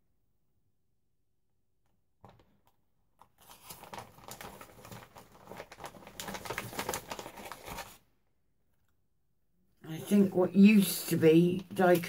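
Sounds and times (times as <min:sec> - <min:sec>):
paper rustling and crinkling: 0:02.2 - 0:08.0.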